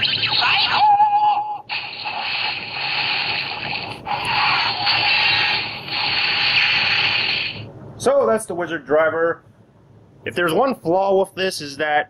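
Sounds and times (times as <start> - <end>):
hissing whooshing electronic effect: 1.7 - 7.6.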